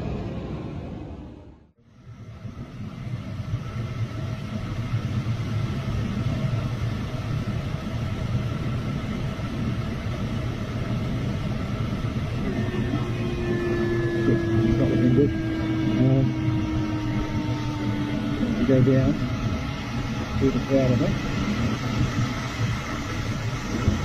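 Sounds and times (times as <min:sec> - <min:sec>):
rush of airflow in cockpit: 0:00.0 - 0:24.0.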